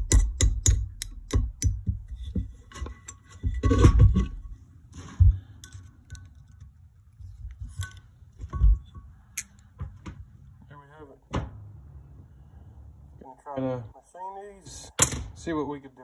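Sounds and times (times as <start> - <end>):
metal knocks: 0.0 - 4.6, 7.6 - 10.2
metal parts scraping and clattering: 2.2 - 4.6.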